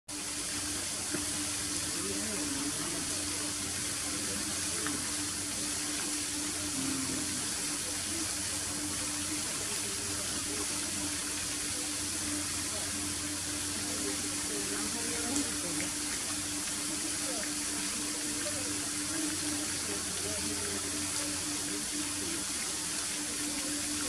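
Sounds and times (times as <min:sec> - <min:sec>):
low steady hum: 0:00.1 - 0:24.0
running water hiss: 0:00.1 - 0:24.0.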